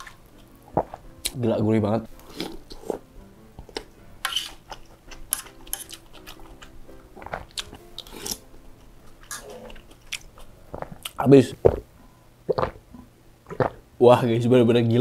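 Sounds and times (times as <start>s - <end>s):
chewing and wet smacking: 4.7s - 8.4s.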